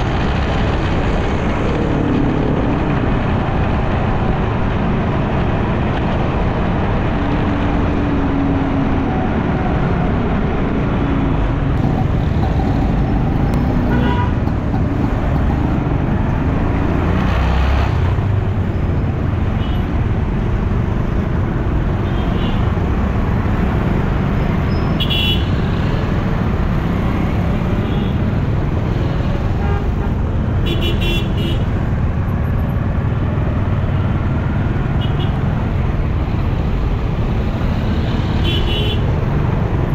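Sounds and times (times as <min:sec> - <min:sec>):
road and wind noise: 0:00.0 - 0:39.9
vehicle horns tooting: 0:13.9 - 0:14.4.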